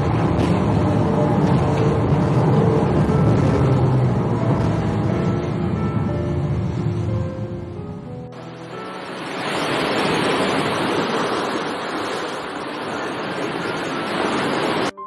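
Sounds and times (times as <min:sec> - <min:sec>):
sea waves washing on shore: 0:08.4 - 0:15.0.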